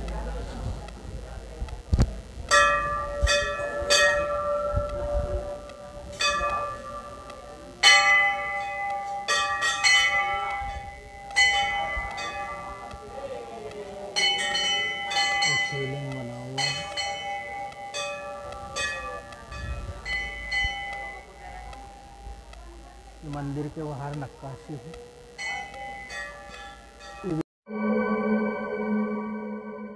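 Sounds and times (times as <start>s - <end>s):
brass bells clanging: 14.2s - 21.2s
higher-pitched bell: 14.2s - 22.3s, 25.4s - 29.9s.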